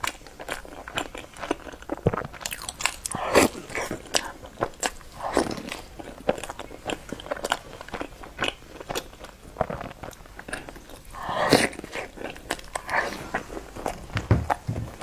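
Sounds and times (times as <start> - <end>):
person biting and chewing food: 0.0 - 14.6.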